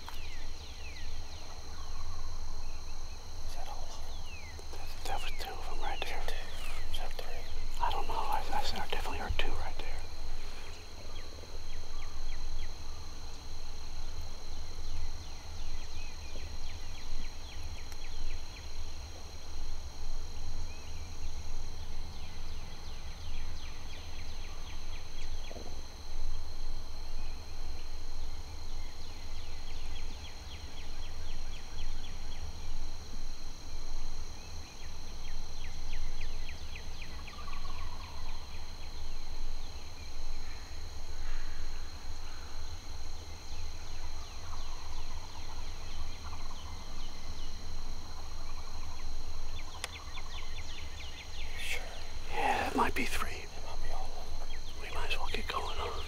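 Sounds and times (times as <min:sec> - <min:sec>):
rapid chirping trills: 0:00.0 - 0:19.0, 0:34.4 - 0:56.0
high-pitched insect drone: 0:00.0 - 0:56.0.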